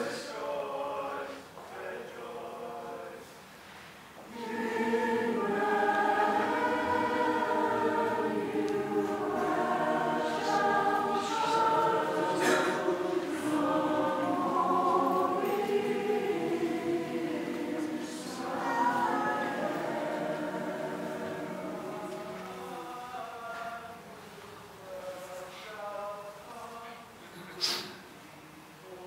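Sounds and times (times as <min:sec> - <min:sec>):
choir singing: 0:00.0 - 0:03.3, 0:04.3 - 0:24.0.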